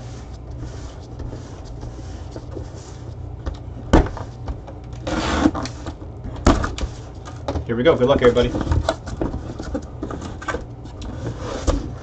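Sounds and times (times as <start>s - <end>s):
cardboard rustling scrape: 0.0s - 3.3s, 5.0s - 6.0s, 6.6s - 12.0s
low steady hum: 0.0s - 12.0s
knock on cardboard box: 3.9s - 4.3s.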